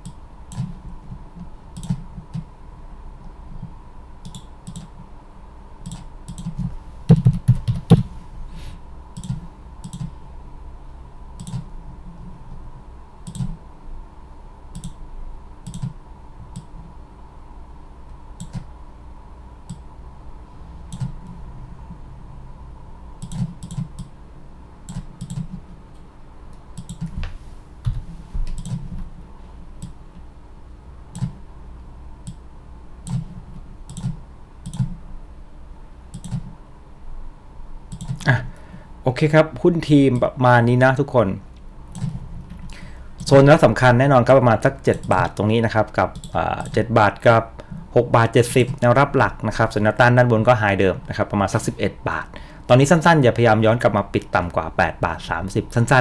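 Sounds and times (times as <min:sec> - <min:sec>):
computer mouse clicking: 0:00.0 - 0:00.8, 0:01.8 - 0:02.5, 0:04.2 - 0:04.9, 0:05.8 - 0:08.0, 0:09.2 - 0:10.2, 0:11.4 - 0:11.7, 0:13.2 - 0:13.6, 0:14.7 - 0:15.0, 0:15.6 - 0:16.7, 0:18.4 - 0:18.7, 0:20.9 - 0:21.4, 0:23.2 - 0:24.1, 0:24.9 - 0:25.6, 0:26.5 - 0:27.2, 0:27.9 - 0:28.9, 0:31.1 - 0:31.4, 0:32.2 - 0:32.4, 0:33.0 - 0:33.3, 0:33.9 - 0:35.0, 0:36.1 - 0:36.5, 0:37.9 - 0:38.3, 0:41.9 - 0:42.2, 0:46.2 - 0:46.8
faint electrical hum: 0:00.0 - 0:56.0.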